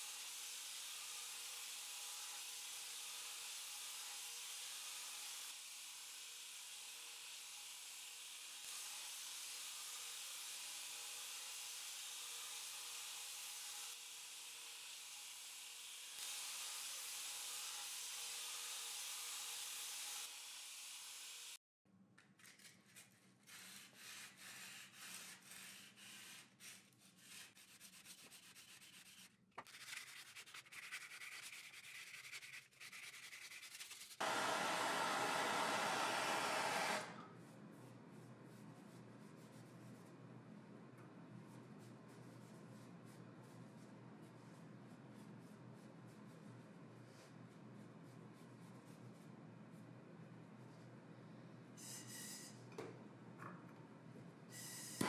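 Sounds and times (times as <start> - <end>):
gas torch hissing: 34.2 - 37.2.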